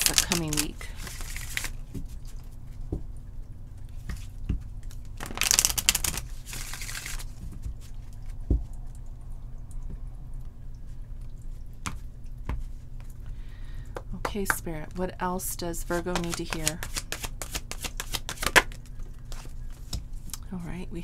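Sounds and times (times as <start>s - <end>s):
cards riffling: 0.0s - 2.0s, 4.9s - 7.7s, 15.9s - 20.0s
deck tapping on table: 16.1s - 18.7s.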